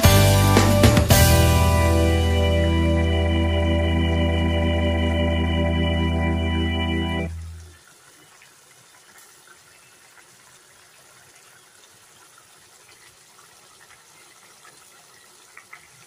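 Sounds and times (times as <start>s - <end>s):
gravy bubbling in a pot: 7.4s - 16.0s.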